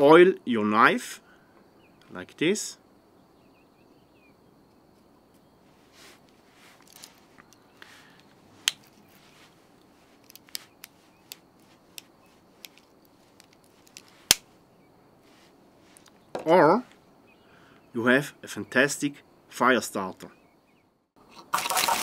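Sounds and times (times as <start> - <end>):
soft rubbing: 5.3 - 14.6, 15.2 - 16.1.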